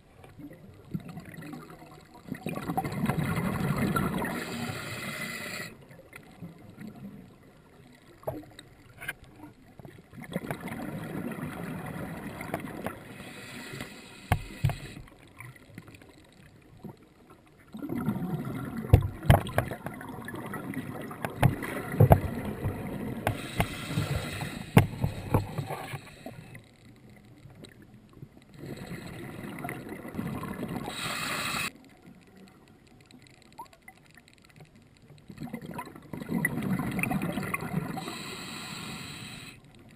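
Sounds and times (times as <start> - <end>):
diver exhaling bubbles underwater: 17.8 - 19.3.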